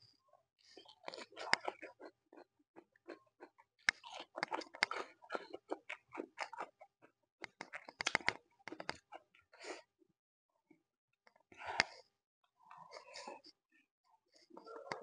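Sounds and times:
chewing crisp cucumber: 0.6s - 9.8s.

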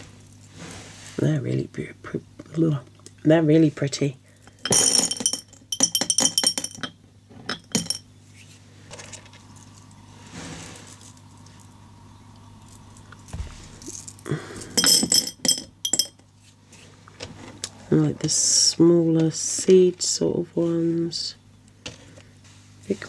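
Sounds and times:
glass beads clinking: 4.6s - 8.0s, 13.9s - 16.2s.

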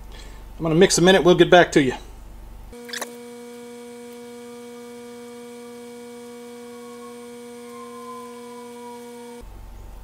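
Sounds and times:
higher tone falling in pitch: 4.4s - 9.4s.

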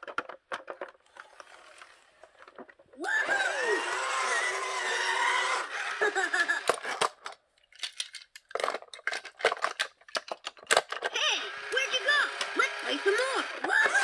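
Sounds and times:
toy cars clattering on plastic: 0.0s - 3.0s, 4.8s - 14.0s.

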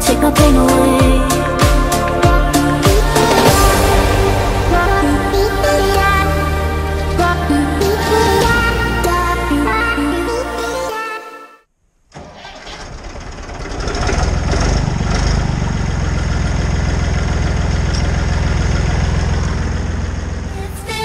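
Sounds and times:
tractor engine starting and running: 12.0s - 21.0s.

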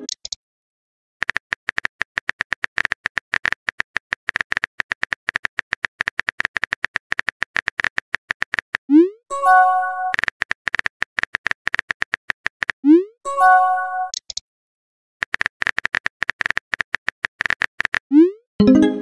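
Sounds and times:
message chime: 18.6s - 19.0s.

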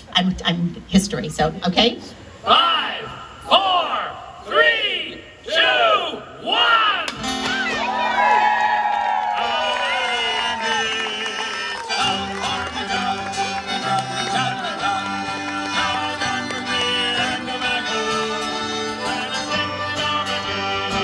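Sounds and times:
folk fiddle music: 10.1s - 21.0s.

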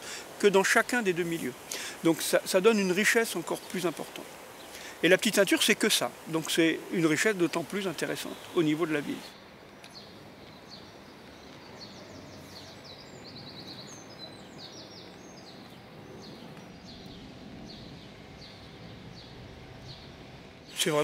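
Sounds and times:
songbirds chirping and trilling: 0.0s - 21.0s
low background hum: 9.4s - 21.0s.

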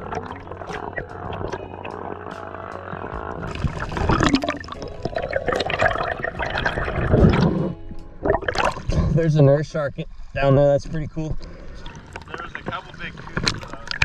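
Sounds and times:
water sloshing and splashing: 0.0s - 9.2s, 11.4s - 14.0s.

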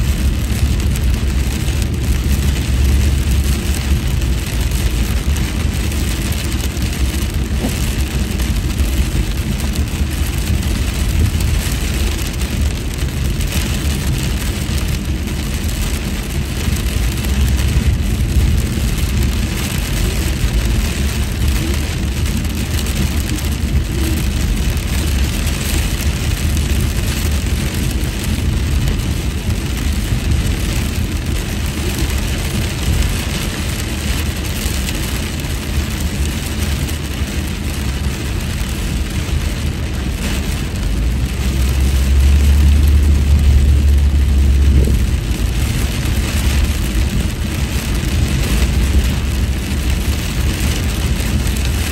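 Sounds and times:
engine and tyre rumble: 0.0s - 51.9s
rain and tyre spray hiss: 0.0s - 51.9s.

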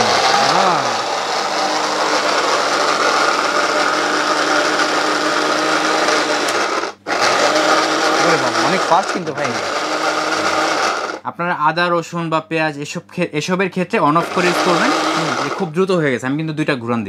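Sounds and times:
mixer grinder motor running: 0.0s - 11.2s, 14.2s - 15.8s.

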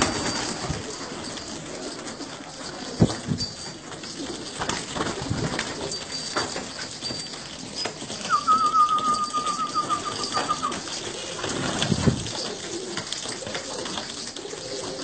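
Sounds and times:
pigeons cooing: 0.0s - 15.0s
higher wavering tone: 8.2s - 10.8s.

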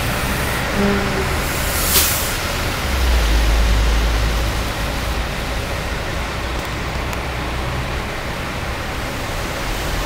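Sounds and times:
traffic on wet road: 0.0s - 10.0s
deep rumble: 0.6s - 2.0s.

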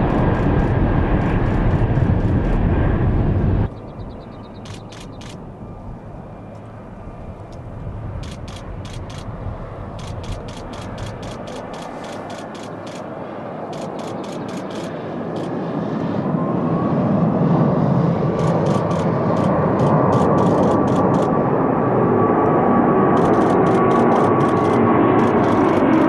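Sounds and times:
steady whine: 0.0s - 16.6s, 18.4s - 26.0s
jet engine roar: 0.0s - 26.0s
rapid sharp clicks: 4.6s - 5.4s, 8.2s - 9.3s, 10.0s - 13.1s, 13.7s - 15.5s, 18.4s - 21.3s, 23.2s - 26.0s.

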